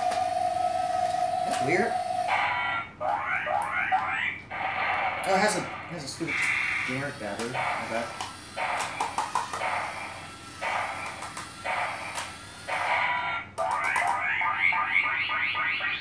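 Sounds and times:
toy robot electronic bursts: 4.5 - 16.0.

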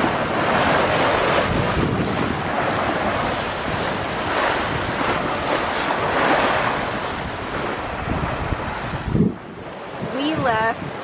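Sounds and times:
waves rushing along a boat hull: 0.0 - 11.0
wind buffeting microphone: 0.0 - 11.0.

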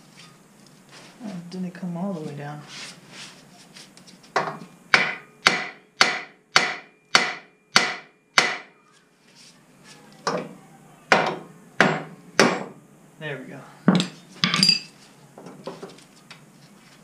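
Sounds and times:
hammer striking steel: 4.9 - 8.7, 11.1 - 12.8.

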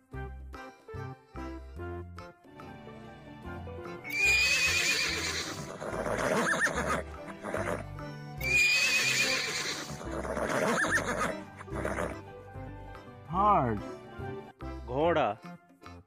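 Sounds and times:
background music: 0.0 - 16.0
horse whinnying: 4.1 - 12.2.

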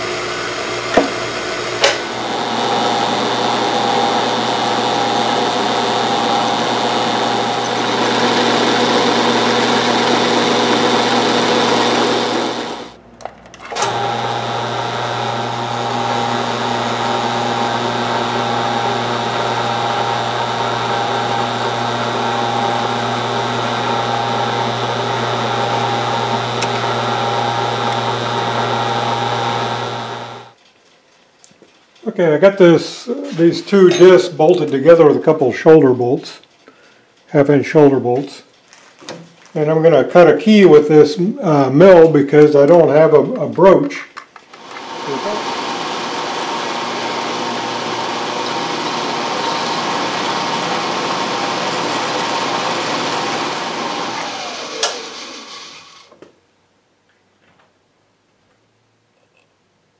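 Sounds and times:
drill press motor running: 0.0 - 13.0, 13.6 - 30.6, 44.5 - 56.2
milling machine motor humming: 0.0 - 13.0, 13.6 - 30.6, 44.5 - 56.1.

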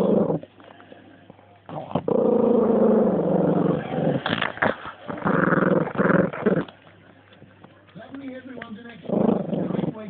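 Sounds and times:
dog growling and snarling: 0.0 - 0.6, 1.7 - 6.8, 9.0 - 10.0.

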